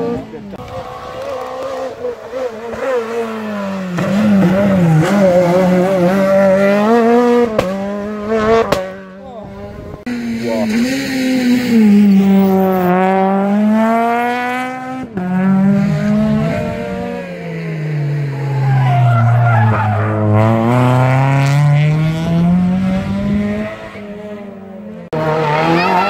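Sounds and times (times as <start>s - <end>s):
rally car engine revving: 0.0s - 26.0s.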